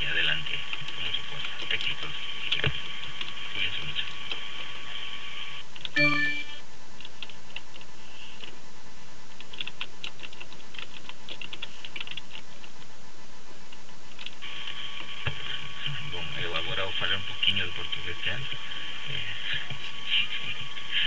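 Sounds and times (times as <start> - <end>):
short beep: 6.0 - 6.6.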